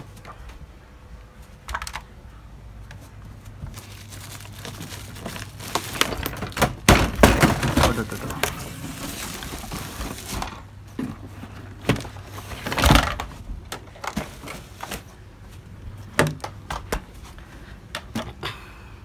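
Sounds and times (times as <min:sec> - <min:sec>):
cardboard scraping rustle: 0:03.5 - 0:06.5, 0:07.6 - 0:10.6.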